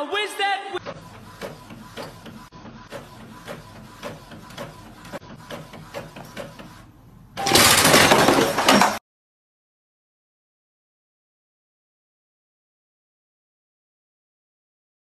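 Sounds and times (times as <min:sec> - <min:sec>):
inkjet printer mechanism clicking: 0:00.8 - 0:06.8.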